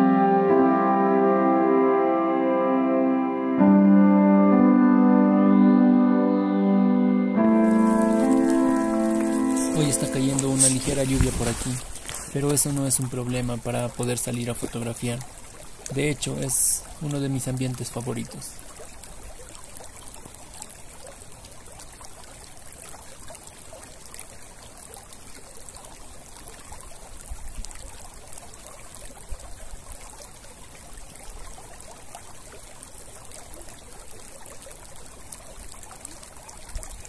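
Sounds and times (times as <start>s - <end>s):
water trickling in a channel: 7.6s - 37.0s.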